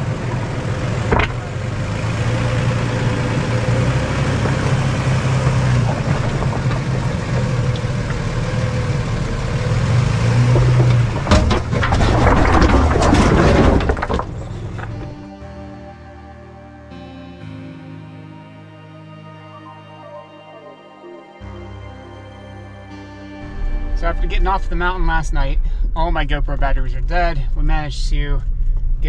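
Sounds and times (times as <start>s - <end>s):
engine running at low revs: 0.0s - 11.6s, 21.4s - 29.0s.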